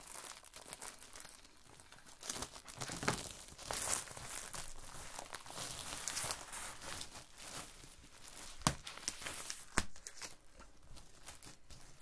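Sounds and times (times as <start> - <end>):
fabric rustling and crinkling: 0.0 - 12.0.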